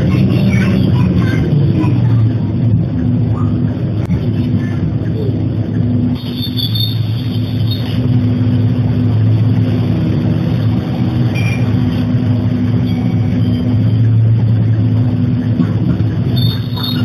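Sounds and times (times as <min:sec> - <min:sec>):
bus diesel engine idling: 0:00.0 - 0:17.0.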